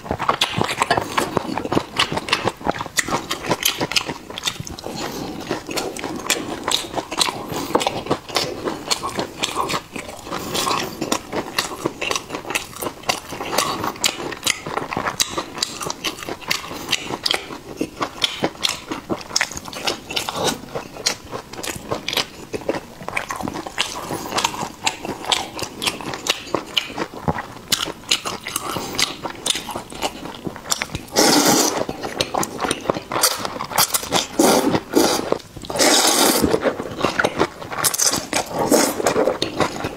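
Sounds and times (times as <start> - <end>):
chewing with wet mouth clicks: 0.0 - 39.9
slurping noodles: 31.0 - 39.9.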